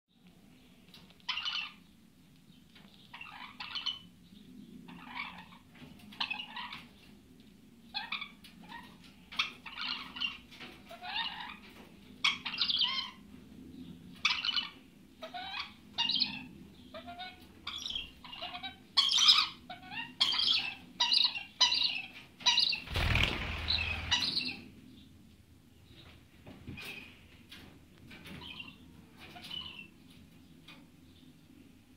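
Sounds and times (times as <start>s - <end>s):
rough burst with low thump: 22.9s - 24.5s.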